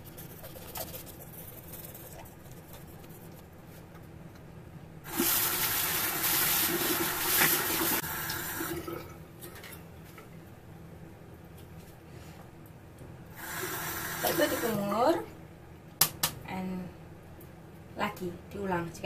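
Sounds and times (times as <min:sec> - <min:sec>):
tap water running into sink: 0:05.1 - 0:09.0.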